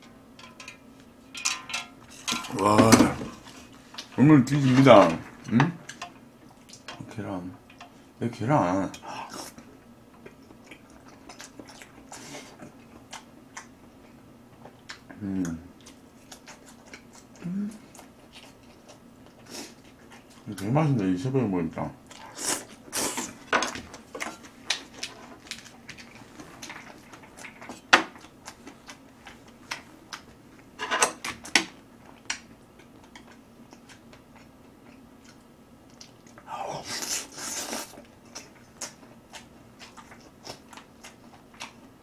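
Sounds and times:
wet chewing: 9.0s - 20.7s, 22.0s - 42.0s.

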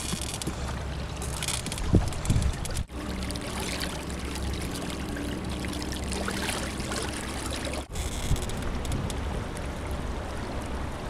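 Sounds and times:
water splashing along boat hull: 0.0s - 11.0s.

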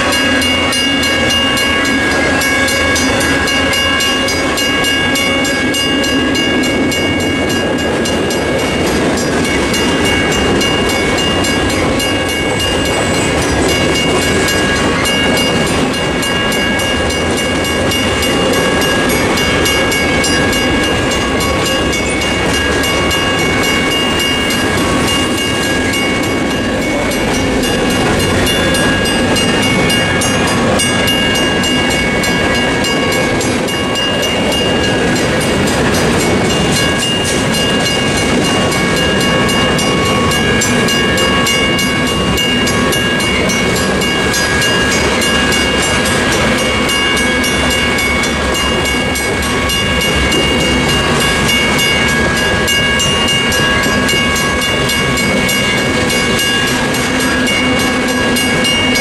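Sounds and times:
crossing bell ringing: 0.0s - 59.0s
train wheels clattering on rails: 0.0s - 59.0s.

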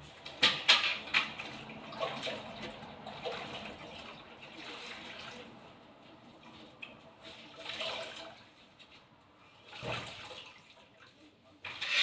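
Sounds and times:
water sloshing in a bucket: 0.0s - 12.0s
water splashes: 1.0s - 5.8s, 6.4s - 8.6s, 9.6s - 11.4s.

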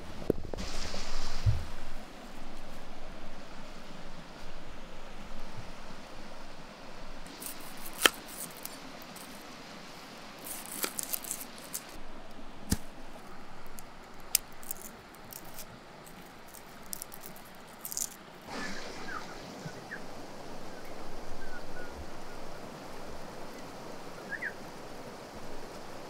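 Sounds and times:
stream rushing: 0.0s - 26.0s
lettuce rustling and crackling: 7.3s - 12.0s, 12.6s - 18.5s.

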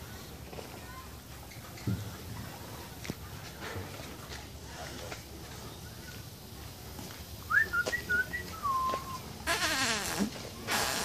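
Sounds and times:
whistling: 7.5s - 9.2s.

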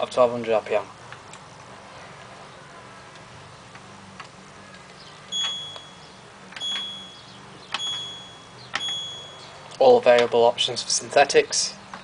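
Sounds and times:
short high beeps: 5.3s - 9.6s.

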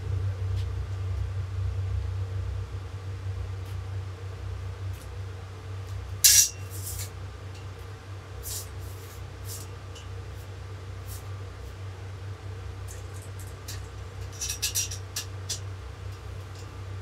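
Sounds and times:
low hum: 0.0s - 8.4s.

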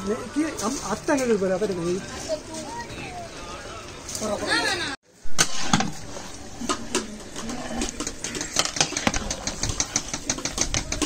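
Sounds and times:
metal ladle scraping a pot: 5.3s - 11.0s.

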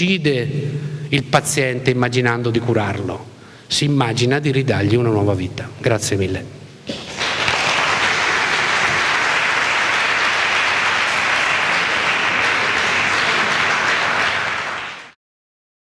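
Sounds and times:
audience applauding: 6.9s - 15.2s.

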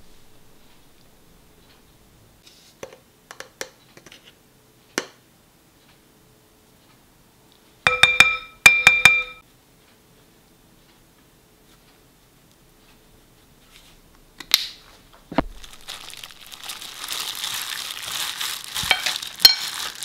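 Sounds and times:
utensil clinking glass bowl: 7.9s - 9.4s, 18.8s - 19.8s.

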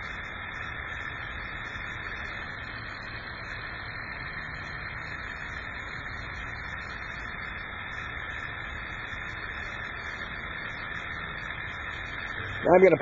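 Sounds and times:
stirling engine running: 0.0s - 13.0s.

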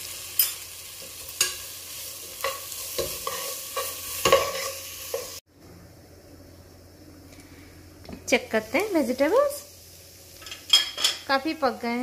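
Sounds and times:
frying sizzle: 0.0s - 5.5s, 6.1s - 12.0s
spoon stirring vegetables: 0.4s - 5.4s.

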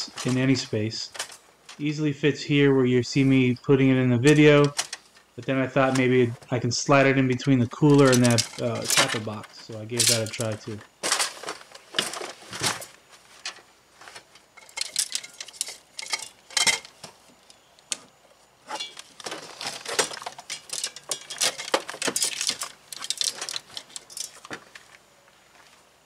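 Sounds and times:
gear knocking and rattling: 7.9s - 12.3s.

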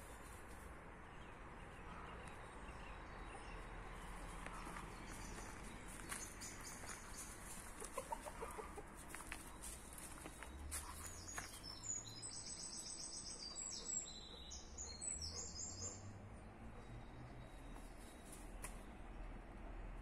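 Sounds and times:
hens clucking: 7.4s - 9.5s.

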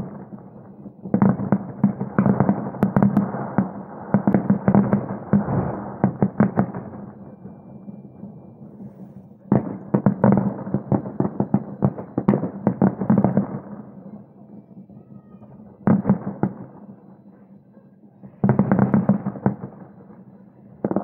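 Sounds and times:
fireworks bangs: 1.1s - 13.7s.

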